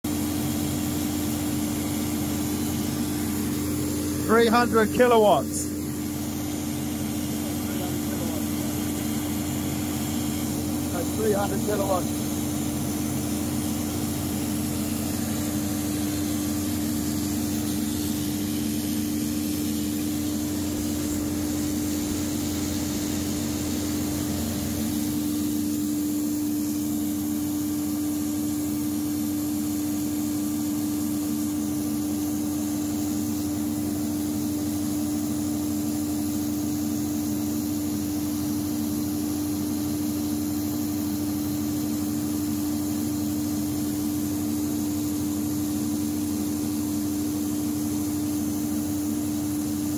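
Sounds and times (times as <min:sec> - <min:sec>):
gas engine generator droning: 0:02.7 - 0:25.4.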